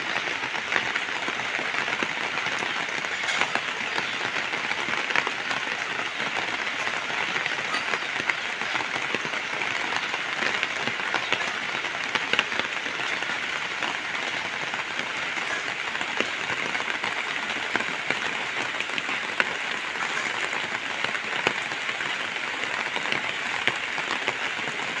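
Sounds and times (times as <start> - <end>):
heavy rain on leaves and ground: 0.0 - 25.0.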